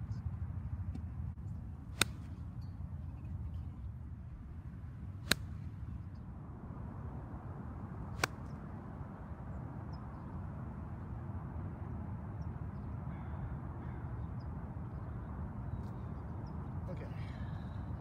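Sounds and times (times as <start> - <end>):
low outdoor rumble: 0.0 - 18.0
golf club striking ball: 2.0 - 2.4, 5.2 - 5.7, 8.2 - 8.6.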